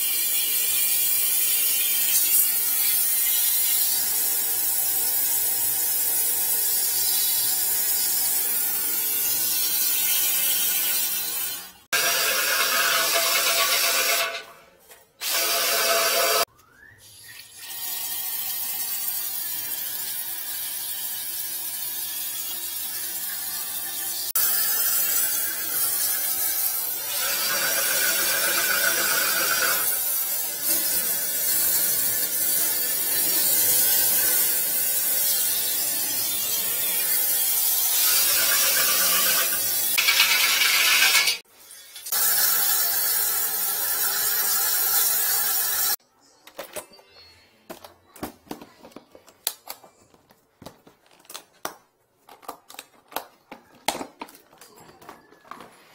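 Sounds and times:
drain-cleaning machine whirring: 24.4s - 41.4s.

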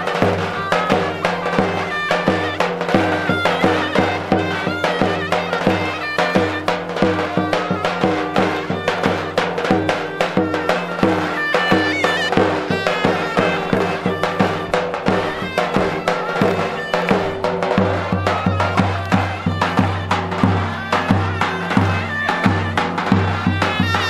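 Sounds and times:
quick drum beats: 0.0s - 24.0s
reedy wind instrument melody: 0.0s - 24.0s.

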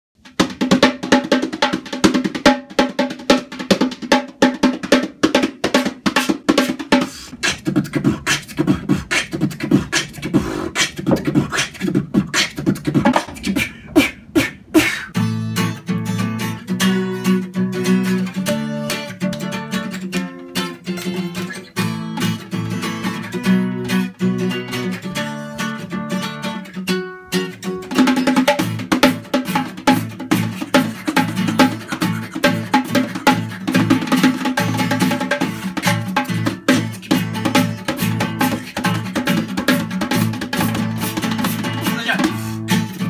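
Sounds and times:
hand drum strokes: 0.2s - 24.0s, 27.4s - 43.0s
acoustic guitar chords: 0.2s - 43.0s
beatboxing: 3.1s - 15.4s, 21.0s - 25.7s, 27.9s - 43.0s.

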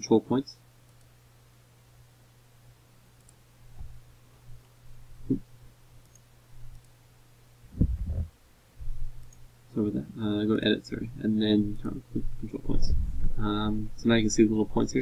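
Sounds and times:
steady low hum: 0.0s - 15.0s
computer mouse clicks: 3.2s - 3.4s, 6.0s - 7.0s, 9.2s - 9.4s.

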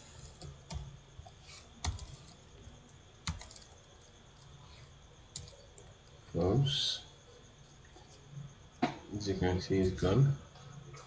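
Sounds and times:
computer keyboard typing: 1.8s - 2.4s, 3.2s - 3.8s, 5.3s - 5.9s.

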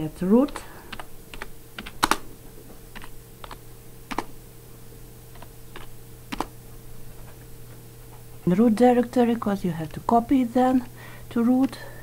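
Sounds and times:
steady low hum: 0.0s - 12.0s
keyboard key clicks: 1.0s - 2.2s, 2.9s - 4.3s, 5.4s - 6.5s.

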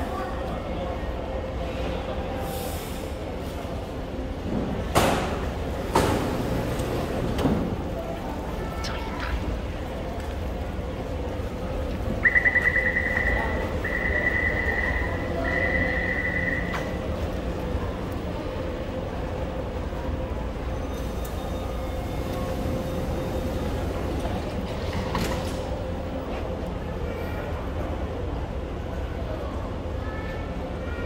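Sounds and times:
steady train hum: 0.0s - 31.0s.

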